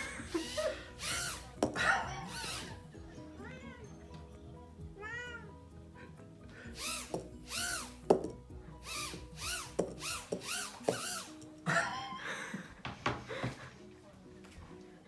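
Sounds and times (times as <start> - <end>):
toy drone motors whining: 0.3 - 1.5, 2.3 - 2.8, 6.7 - 8.0, 8.8 - 11.4.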